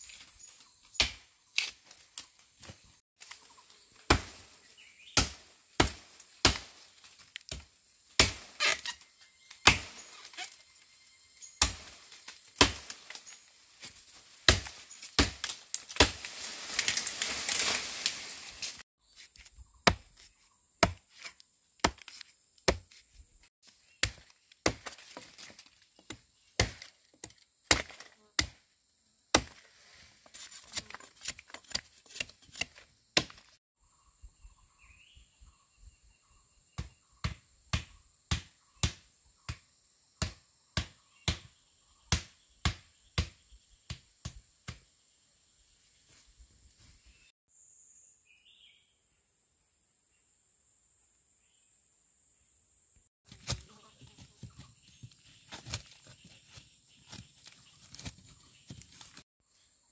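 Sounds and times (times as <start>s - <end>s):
blade chopping bamboo: 4.1s - 4.4s, 5.1s - 8.9s, 9.6s - 10.0s, 11.6s - 13.1s, 14.4s - 17.8s, 18.7s - 23.1s, 23.9s - 28.6s, 29.3s - 29.7s, 30.3s - 33.6s.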